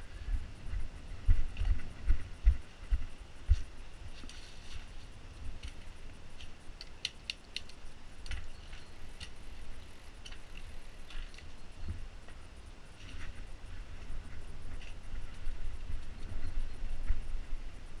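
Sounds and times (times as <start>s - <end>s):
bike clicks and rattles: 5.6s - 12.4s.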